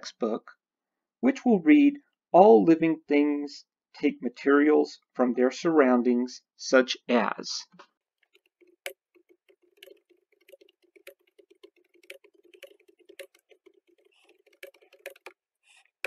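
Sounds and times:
faint keyboard typing: 8.2 - 15.9.

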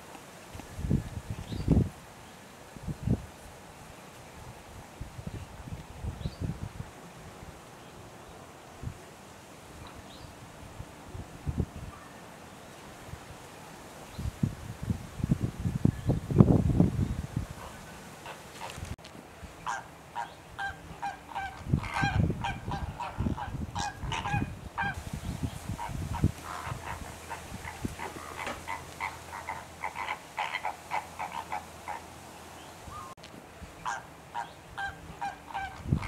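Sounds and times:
flamingos honking: 17.5 - 18.9, 19.6 - 25.0, 25.7 - 32.2, 33.8 - 36.0.

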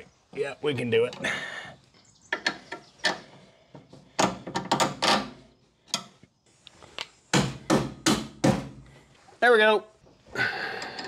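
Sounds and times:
hand tools clicking on metal: 10.8 - 11.0.

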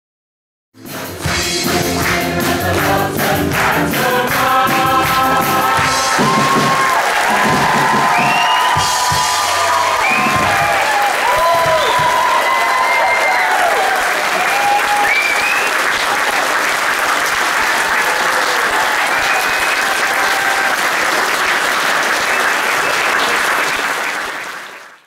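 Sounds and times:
audience clapping: 0.8 - 25.0
people cheering: 2.0 - 24.8.

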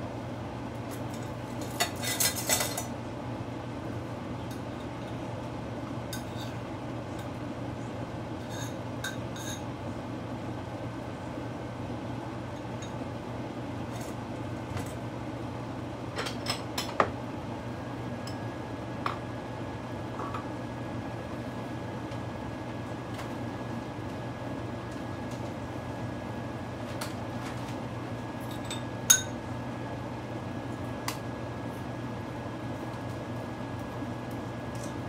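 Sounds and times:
steady low hum: 0.0 - 35.0
glass clinking: 28.5 - 29.4.

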